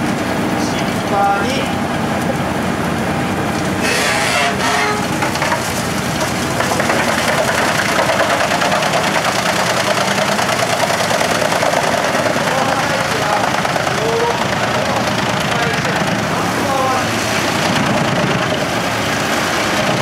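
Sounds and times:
diesel engine running: 0.0s - 20.0s
fast even rattle: 3.8s - 16.3s.

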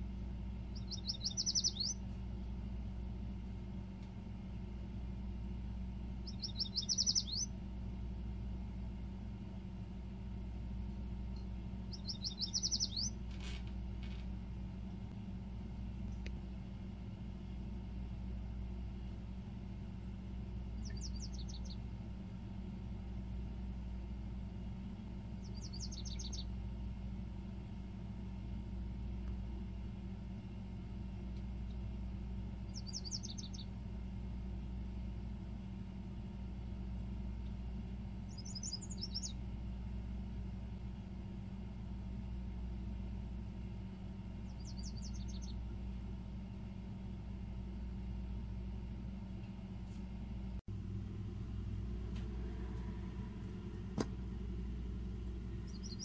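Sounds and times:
songbird singing: 0.0s - 2.5s, 6.0s - 7.7s, 10.9s - 13.6s, 20.6s - 22.0s, 25.0s - 26.6s, 32.6s - 33.8s, 38.2s - 39.5s, 44.3s - 45.8s, 51.2s - 56.0s
steady low rumble: 0.0s - 56.0s.

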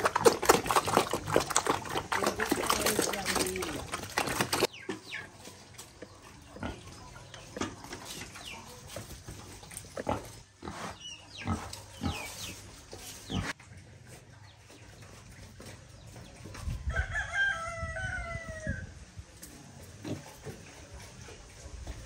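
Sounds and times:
pigs grunting: 0.0s - 4.7s, 6.2s - 12.6s.

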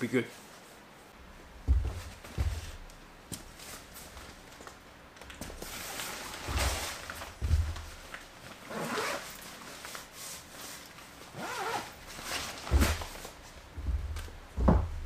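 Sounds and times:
handling bumps on microphone: 1.6s - 2.9s
zipper pulled: 8.6s - 9.5s, 11.3s - 13.0s.

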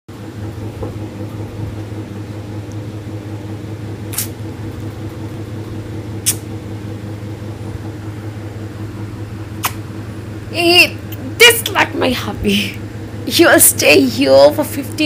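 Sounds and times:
low mechanical hum: 0.1s - 15.0s
sharp clicks: 6.2s - 6.4s.

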